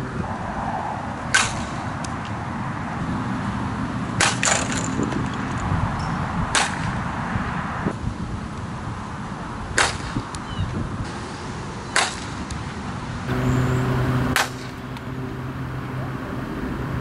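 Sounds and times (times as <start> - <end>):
bat striking softball: 1.3 - 2.0, 4.2 - 5.1, 6.5 - 7.0, 9.8 - 10.2, 11.9 - 12.5, 14.2 - 15.1.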